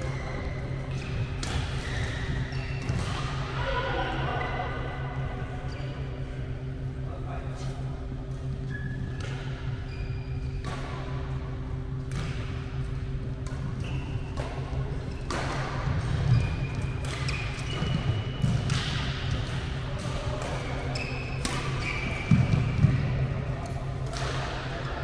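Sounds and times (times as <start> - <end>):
steady low hum: 0.0 - 25.0
racket hitting shuttlecock: 0.9 - 2.1, 13.4 - 15.9, 16.7 - 20.6, 21.4 - 23.0.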